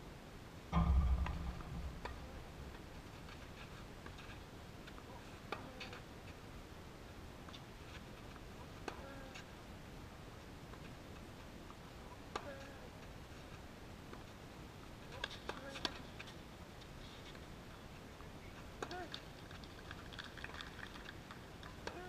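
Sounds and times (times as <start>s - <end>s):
outdoor background noise: 0.0s - 22.0s
dull low thump: 0.8s - 3.1s.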